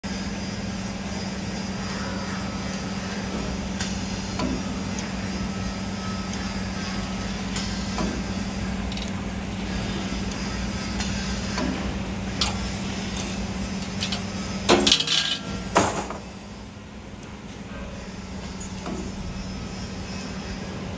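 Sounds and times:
loud metallic clanks: 14.0 - 16.3.

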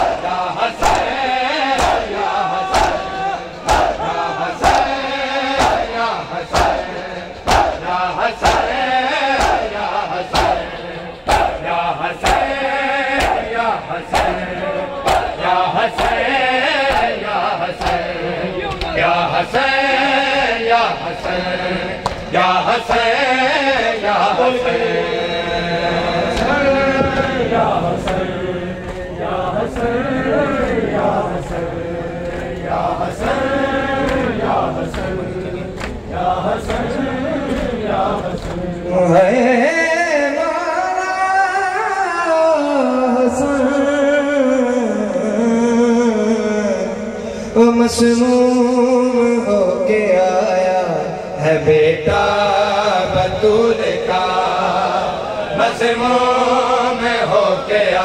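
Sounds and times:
rhythmic chest-beating slaps: 0.0 - 25.0, 26.2 - 39.0
men chanting in unison: 0.0 - 58.0.

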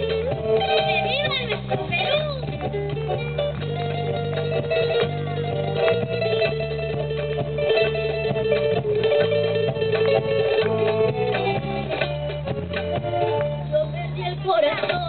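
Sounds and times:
cajon strokes: 0.0 - 13.9
bass notes: 0.0 - 15.0
held melody line: 0.0 - 15.0
plucked guitar: 0.0 - 15.0.

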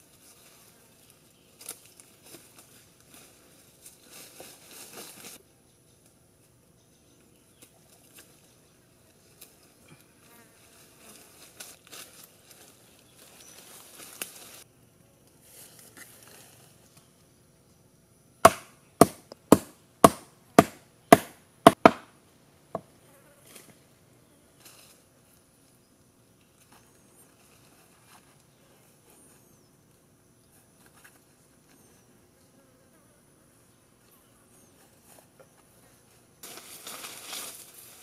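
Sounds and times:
insects buzzing faintly: 0.0 - 38.0
sharp chopping blows: 18.4 - 22.1.

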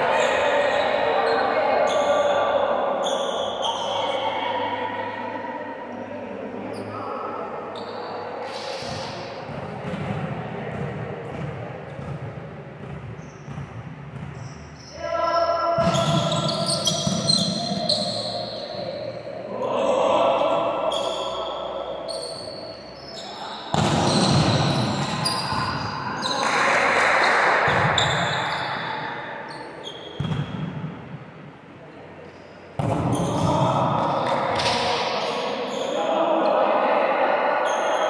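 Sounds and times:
players' voices: 0.0 - 38.0
volleyball hits and bounces: 8.9 - 14.7, 23.7 - 26.5, 30.2 - 31.0, 32.8 - 35.2.

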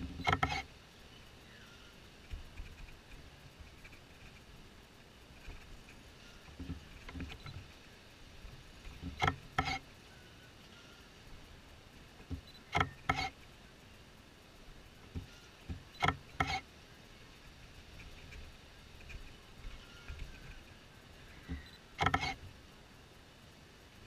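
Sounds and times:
squeaky knocks: 0.0 - 0.6, 12.2 - 13.3, 15.1 - 16.6, 21.4 - 22.5
ride cars creaking: 0.0 - 0.7, 5.4 - 7.8, 8.8 - 11.2, 12.1 - 13.5, 15.0 - 16.7, 17.9 - 22.6.

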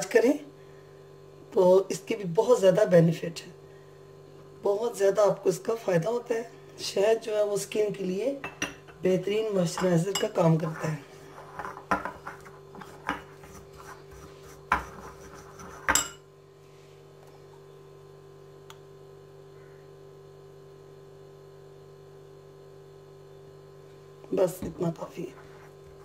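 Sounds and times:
low electrical hum: 0.0 - 26.0
spoon scraping glass bowl: 9.7 - 16.2.

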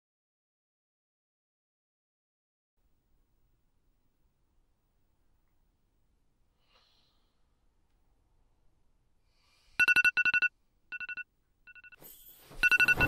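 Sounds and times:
phone ringing with electronic trill: 9.8 - 12.0, 12.6 - 13.0.

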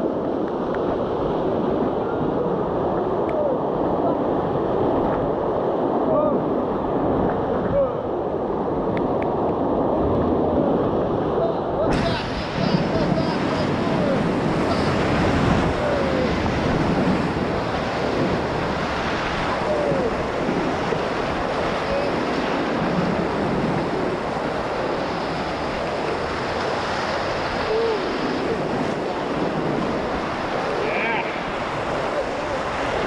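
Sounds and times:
whitewater rapids rushing: 11.1 - 33.0.

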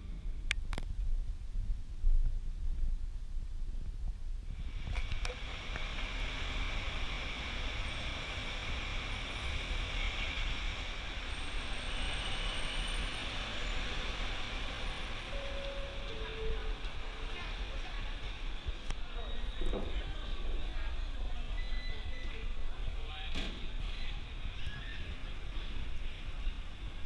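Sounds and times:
traffic hiss on wet pavement: 4.6 - 15.4.

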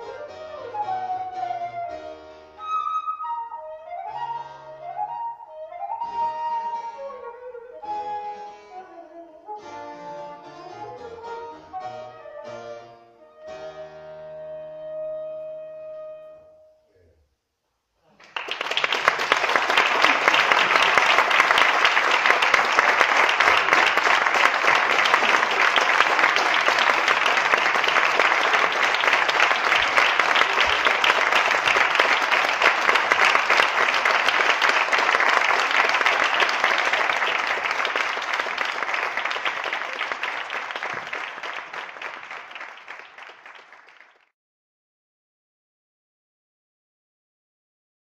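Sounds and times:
audience applauding: 18.1 - 44.3.

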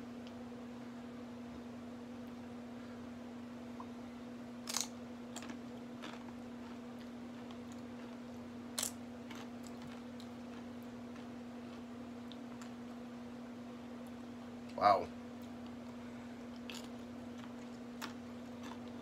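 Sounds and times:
chip crunching when chewed: 4.6 - 13.0, 16.5 - 19.0.

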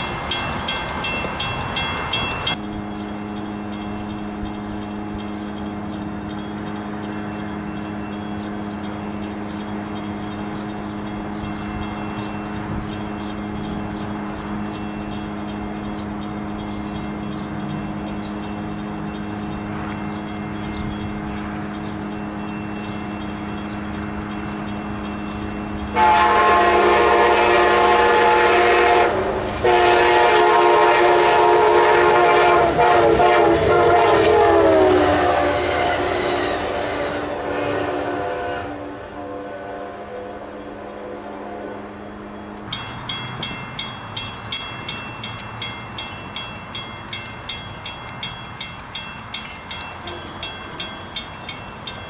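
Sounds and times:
locomotive horn blasts: 25.9 - 42.0.

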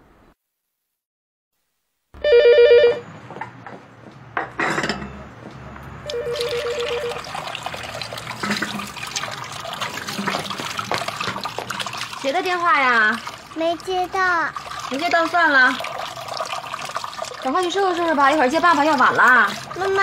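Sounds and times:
cordless phone warbling ring: 2.2 - 3.0, 6.1 - 7.2.

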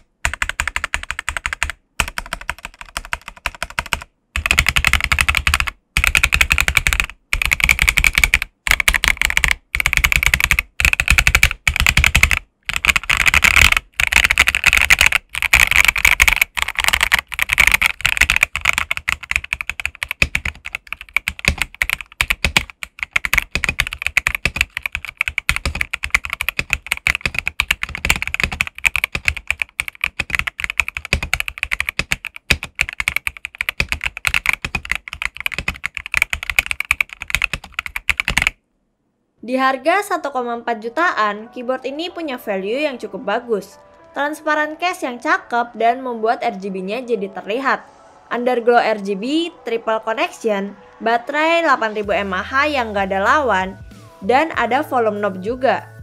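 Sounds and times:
mechanical keyboard keystroke clacks: 0.3 - 38.5.

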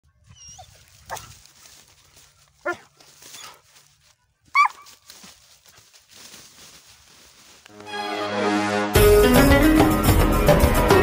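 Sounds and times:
dog barking: 2.6 - 3.6, 4.5 - 4.9.

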